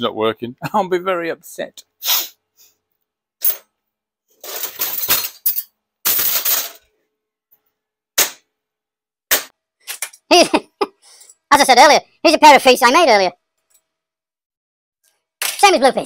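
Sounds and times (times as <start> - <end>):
metal parts clattering and scraping: 4.3 - 6.9.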